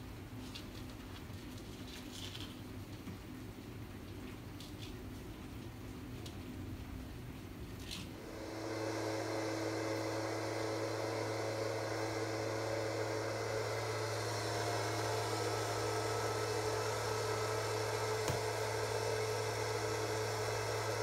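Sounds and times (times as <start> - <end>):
electric motor humming: 8.2 - 21.0.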